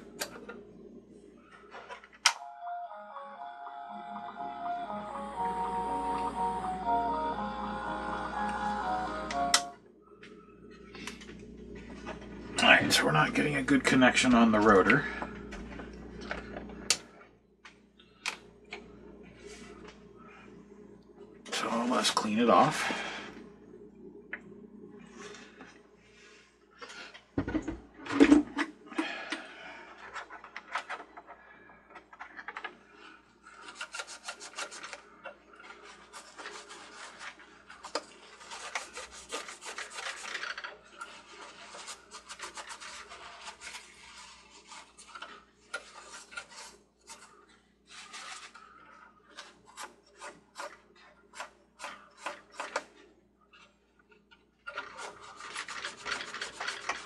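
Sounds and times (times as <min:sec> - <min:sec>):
paper towel rubbing metal: 0:33.6 - 0:35.0, 0:35.7 - 0:48.8, 0:54.8 - 0:57.0.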